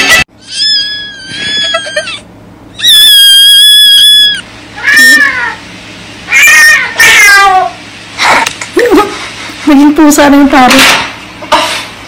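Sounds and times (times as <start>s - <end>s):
cat meowing: 0.1s - 2.2s, 2.8s - 5.6s, 6.3s - 7.7s.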